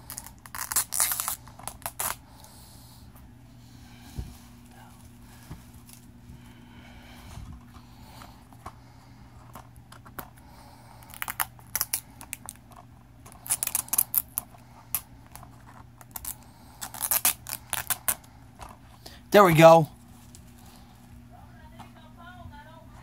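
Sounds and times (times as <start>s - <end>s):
plastic shrink-wrap crinkling: 0.0s - 2.2s, 11.0s - 18.3s.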